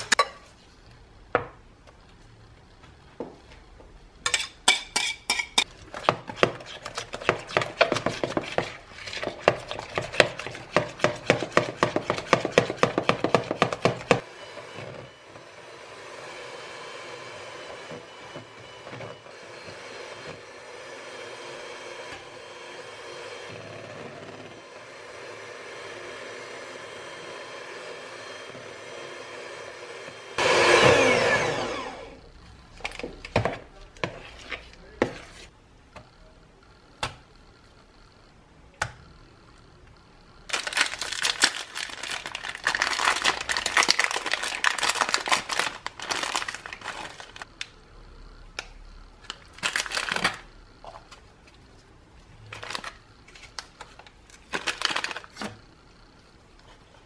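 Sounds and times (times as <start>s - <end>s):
scraping cream filling: 5.6s - 14.2s
electric hand mixer whirring: 9.7s - 32.3s
paper and wrapper crinkling: 40.5s - 47.5s, 49.3s - 50.5s, 52.5s - 55.5s.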